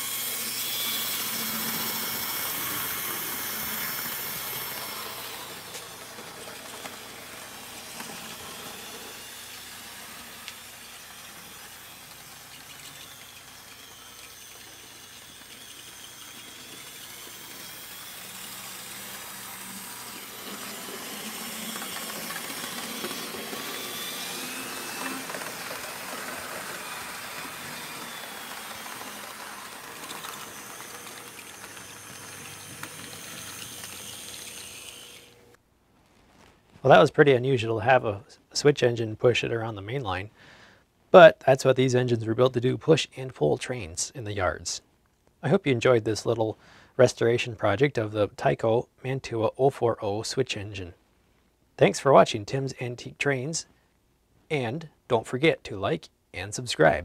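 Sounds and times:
small electric motor whining: 0.0s - 35.6s
wheels rolling on rail: 1.4s - 9.8s, 19.1s - 35.4s.

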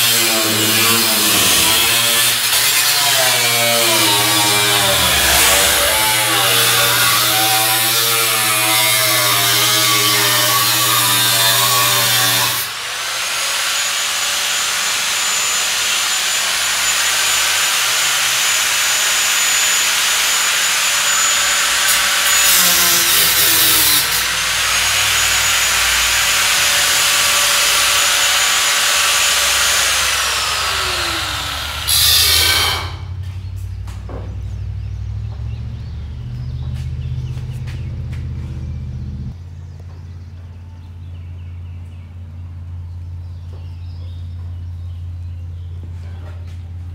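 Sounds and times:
angle grinder cutting sheet metal: 0.0s - 33.2s.

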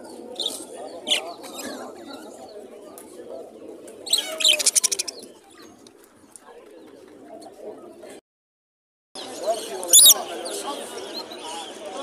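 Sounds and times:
budgerigars chirping and chattering: 9.5s - 10.6s.

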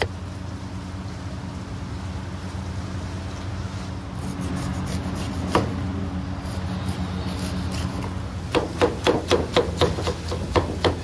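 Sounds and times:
steady low hum: 0.0s - 11.0s
cleaver slicing pineapple skin: 4.2s - 11.0s
blade knocking on wooden block: 8.5s - 11.0s.

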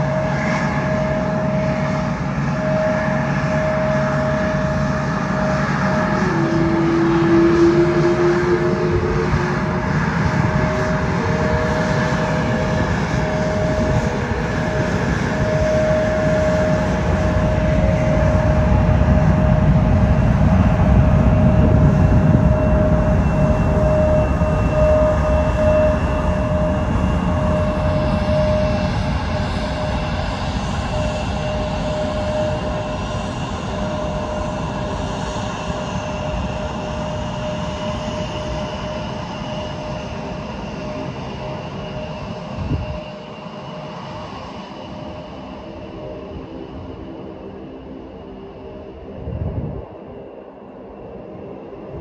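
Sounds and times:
airliner engines rumbling: 0.0s - 52.0s
high engine whine: 0.0s - 52.0s.

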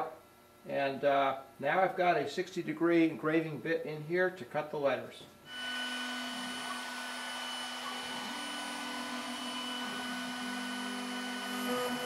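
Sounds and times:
cnc router spindle whine: 5.5s - 12.0s
dust extraction rushing: 5.6s - 12.0s.

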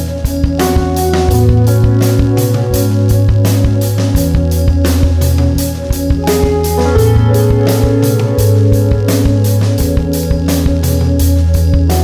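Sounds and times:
drum kit steady beat: 0.0s - 12.0s
held instrumental tones: 0.5s - 12.0s.

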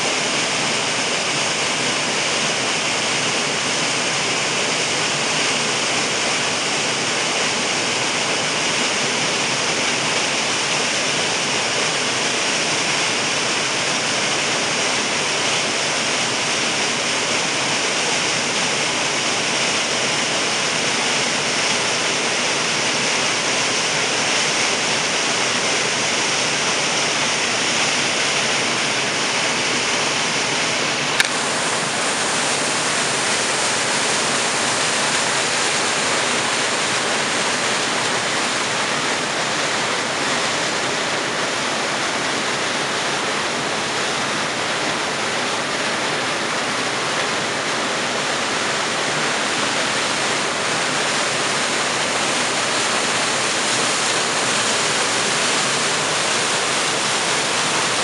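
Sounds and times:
waterfall rushing into pool: 0.0s - 58.0s.

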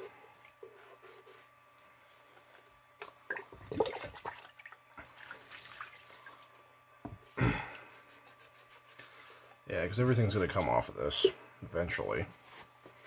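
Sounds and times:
liquid sloshing and splashing: 3.0s - 6.7s.

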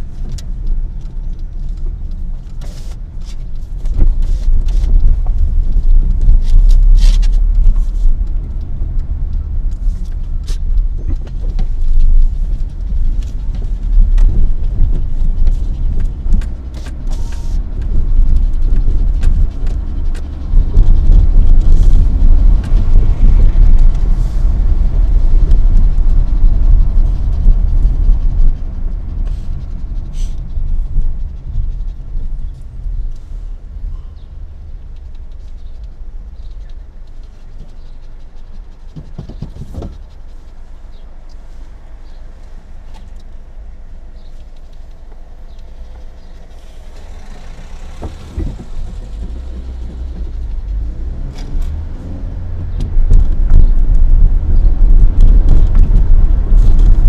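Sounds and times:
car engine and road rumble: 0.0s - 57.0s
knocks and rattles: 48.0s - 50.8s.

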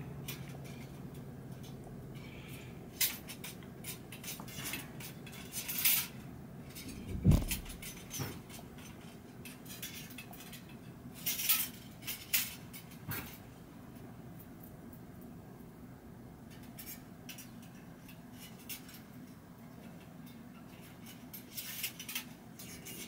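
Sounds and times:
dull thump: 7.0s - 7.9s.

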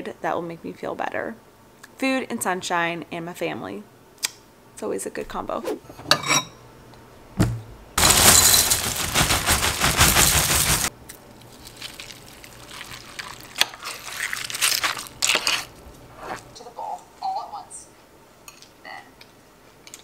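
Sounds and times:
cornflakes pouring into bowl: 8.0s - 10.9s, 11.5s - 15.1s.

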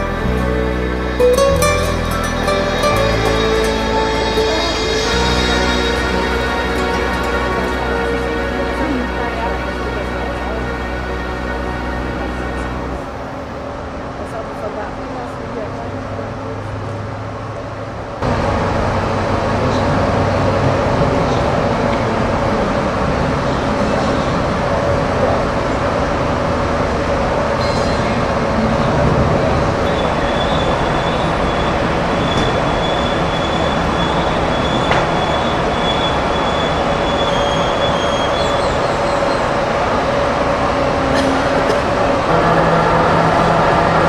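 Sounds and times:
high wheel squeal: 0.0s - 8.6s, 27.6s - 28.8s, 29.8s - 44.0s
rail rumble: 0.0s - 44.0s.

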